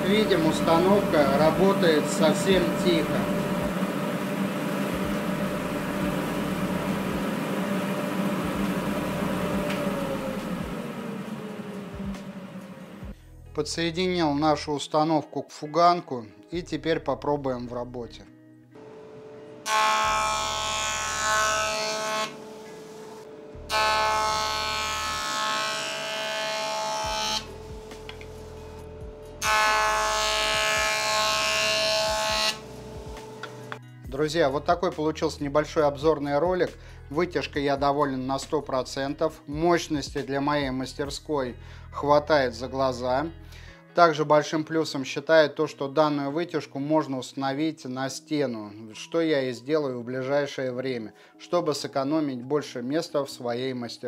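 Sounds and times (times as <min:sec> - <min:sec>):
jointer planing wood: 0:00.0 - 0:13.1, 0:18.8 - 0:28.4, 0:29.4 - 0:33.8
dust collector whirring: 0:00.0 - 0:13.2, 0:18.8 - 0:33.8.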